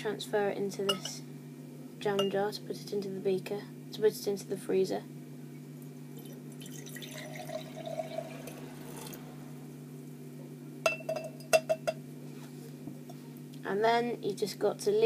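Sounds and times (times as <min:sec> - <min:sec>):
low hum: 0:05.3 - 0:13.6
liquid trickling into glass jar: 0:06.2 - 0:09.2.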